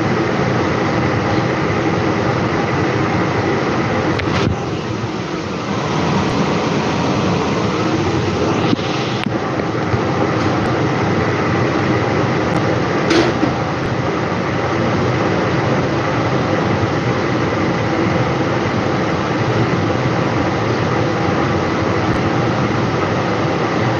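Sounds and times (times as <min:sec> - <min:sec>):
extractor fan whooshing: 0:03.8 - 0:15.0.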